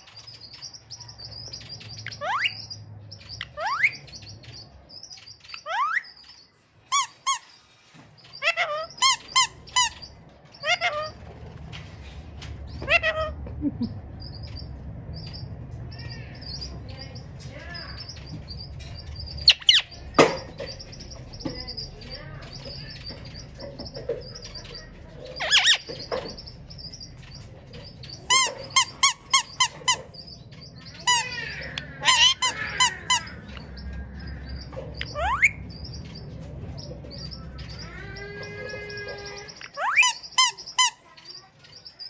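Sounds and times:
parakeet calling: 0:00.0 - 0:42.0
faint high twittering: 0:13.8 - 0:42.0.

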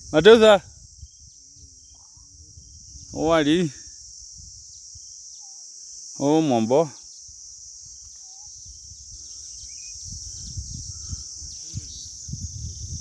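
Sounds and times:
insect chorus: 0:00.0 - 0:13.0
faint bird chirps: 0:00.7 - 0:03.3, 0:04.6 - 0:13.0
low rumbles on microphone: 0:10.0 - 0:13.0.

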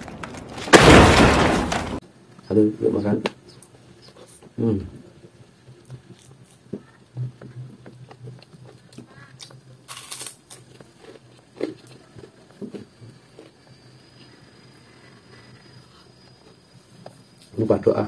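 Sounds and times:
crunch while eating: 0:05.8 - 0:17.6
wet chewing and lip-smacking: 0:07.5 - 0:13.5.

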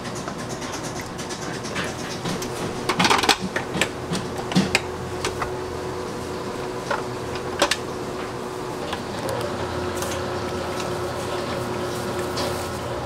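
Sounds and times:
clicks and taps of baking tools: 0:00.0 - 0:05.5
steady low hum: 0:00.0 - 0:13.0.

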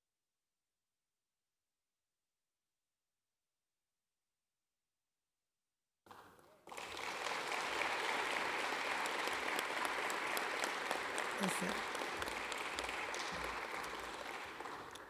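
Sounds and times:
audience applauding: 0:06.4 - 0:15.0.

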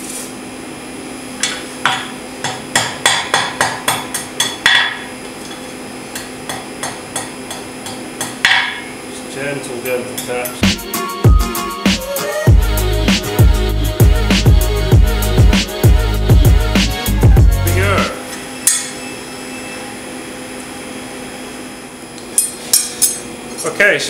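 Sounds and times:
hammer striking steel on anvil: 0:01.4 - 0:09.0, 0:10.1 - 0:10.5, 0:18.6 - 0:19.0.

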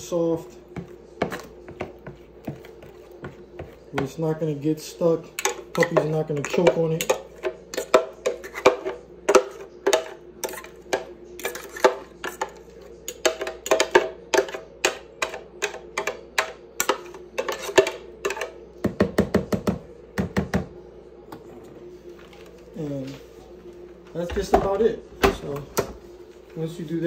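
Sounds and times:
fork scraping plastic blender jar: 0:11.4 - 0:12.6.

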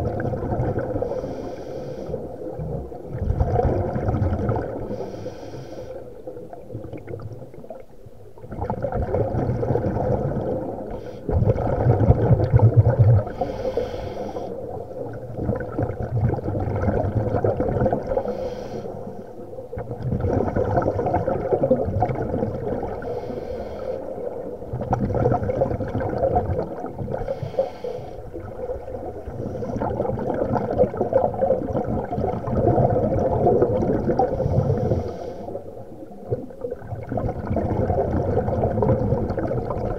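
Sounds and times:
gurgle of exhaled bubbles: 0:00.0 - 0:05.3, 0:05.9 - 0:39.9
hiss of inhale through regulator: 0:01.0 - 0:02.4, 0:04.8 - 0:06.2, 0:10.8 - 0:11.4, 0:13.3 - 0:14.8, 0:18.1 - 0:19.4, 0:22.9 - 0:24.4, 0:27.1 - 0:28.5, 0:29.2 - 0:30.1, 0:34.2 - 0:35.8.

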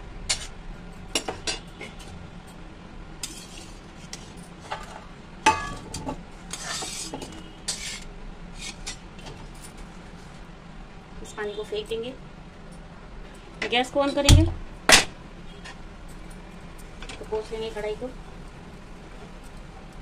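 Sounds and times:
metal spatula scraping a metal pan: 0:03.2 - 0:05.0, 0:06.5 - 0:09.0.

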